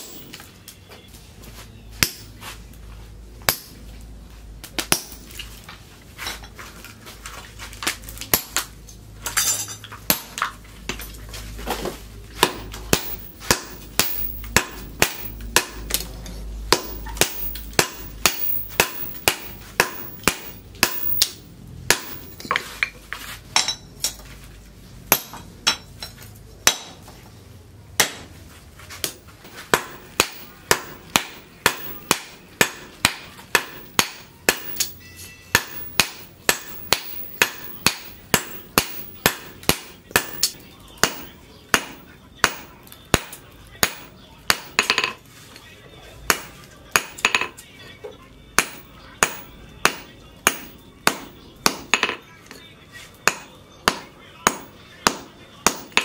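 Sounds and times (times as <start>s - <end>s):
sledgehammer striking hot steel: 0.0s - 0.5s, 2.0s - 2.4s, 3.4s - 3.9s, 4.7s - 5.4s, 9.3s - 11.1s, 12.4s - 22.9s, 25.1s - 27.1s, 28.0s - 28.3s, 29.0s - 45.3s, 46.3s - 47.6s, 48.6s - 52.2s, 53.2s - 56.0s.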